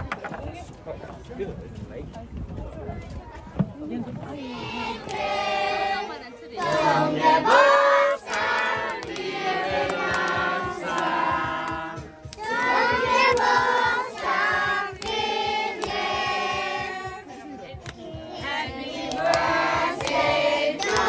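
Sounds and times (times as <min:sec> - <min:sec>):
voices singing together: 0:04.3 - 0:21.0
steady low beat: 0:04.4 - 0:21.0.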